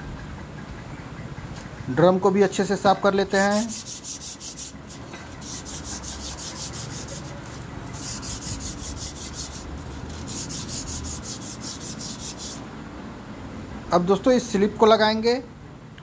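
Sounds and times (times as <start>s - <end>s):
paper scrubbing metal: 3.3s - 12.6s.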